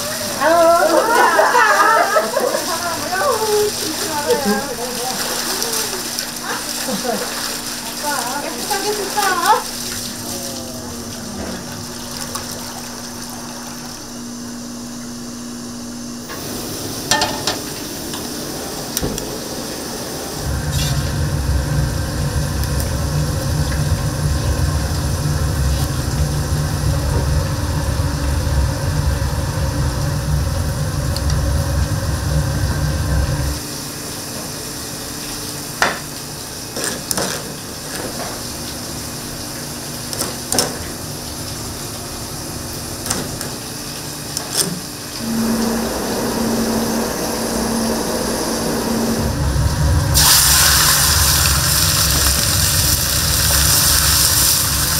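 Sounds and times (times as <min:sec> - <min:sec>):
low steady rumble: 0:15.6 - 0:33.6, 0:45.2 - 0:54.9
food sizzling in a pan: 0:16.4 - 0:18.1, 0:50.2 - 0:54.9.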